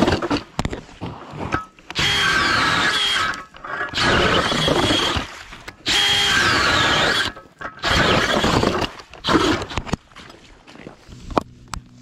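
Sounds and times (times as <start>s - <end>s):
ice auger grinding ice: 0.0s - 11.3s
cordless drill motor whine: 1.9s - 8.8s.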